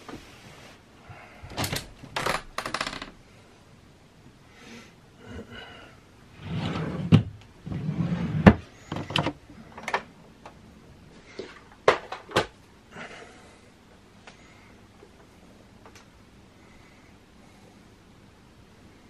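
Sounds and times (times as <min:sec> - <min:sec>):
curtain sliding along rail: 0:06.4 - 0:08.5.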